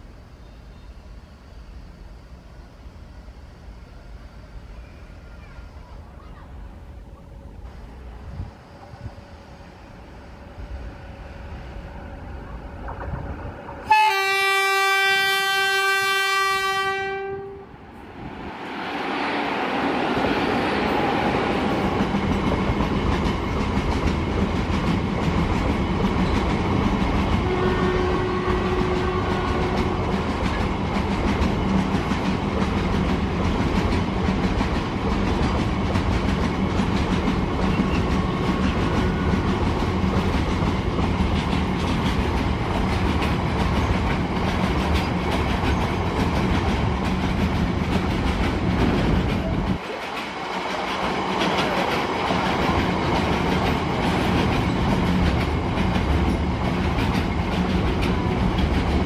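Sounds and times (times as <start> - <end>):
train wheels rumbling and clattering: 10.0 - 15.7, 17.9 - 59.0.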